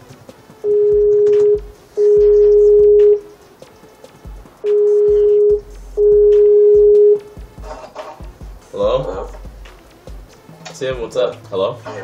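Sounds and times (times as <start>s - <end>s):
phone ringing tone: 0.6s - 3.3s, 4.7s - 7.3s.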